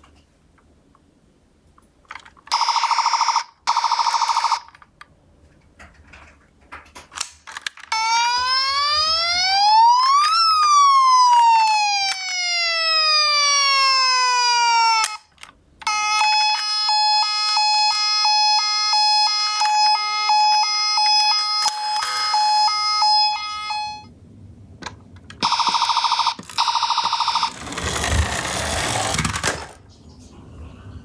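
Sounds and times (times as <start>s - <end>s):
two-tone toy siren: 2.5s - 4.8s, 7.9s - 24.1s, 25.4s - 29.2s
toy siren wailing: 7.9s - 24.1s, 25.4s - 29.4s.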